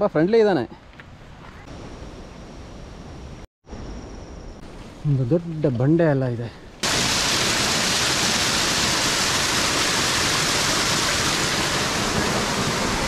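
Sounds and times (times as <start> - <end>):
waterfall rushing: 6.8 - 13.0.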